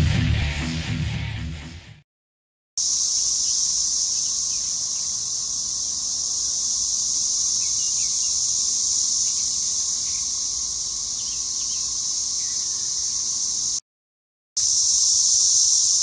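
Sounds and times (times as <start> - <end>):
cicadas droning: 2.8 - 13.8, 14.6 - 16.0.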